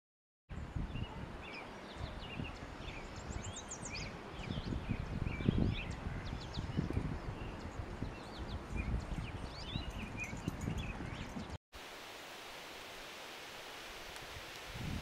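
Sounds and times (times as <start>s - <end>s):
small birds chirping: 0.6s - 11.6s.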